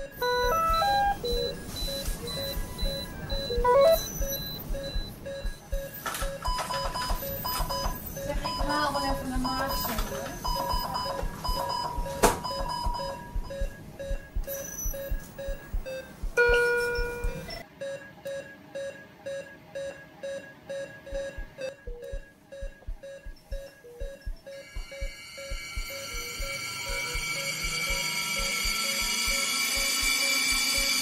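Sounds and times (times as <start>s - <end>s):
low heartbeat-like thuds: 0.0s - 17.6s, 21.1s - 30.1s
patient monitor beeping: 0.0s - 31.0s
multi-tone chime: 24.6s - 31.0s.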